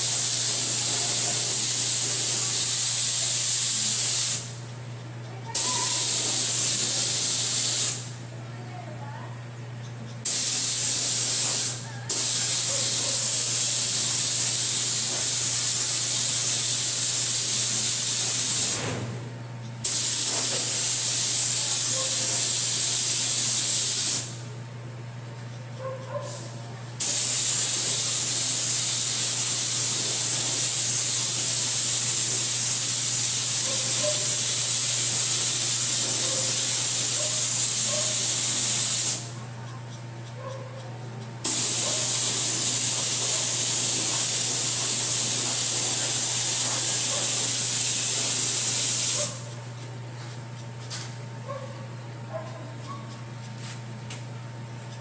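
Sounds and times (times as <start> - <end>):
spray gun hissing: 0.0 - 4.6, 5.5 - 8.1, 10.3 - 18.9, 19.8 - 24.4, 27.0 - 39.4, 41.4 - 49.5
steady low hum: 37.1 - 46.4.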